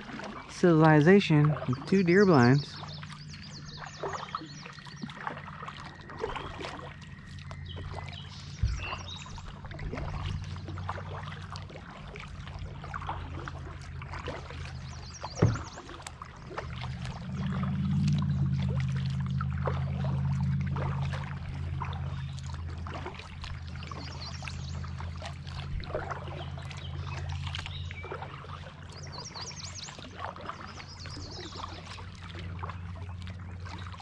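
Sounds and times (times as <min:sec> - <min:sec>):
water splashing and dripping: 0:00.0 - 0:34.0
knocks against kayak hull: 0:15.3 - 0:15.7
steady low hum: 0:16.1 - 0:29.8.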